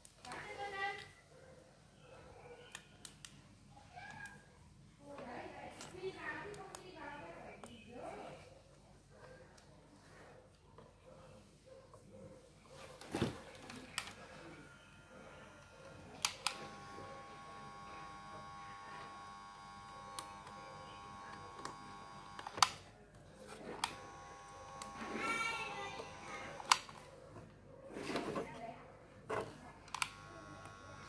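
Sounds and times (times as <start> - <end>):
soldering gun buzzing: 14.0 - 22.8, 23.7 - 26.9, 29.9 - 31.0.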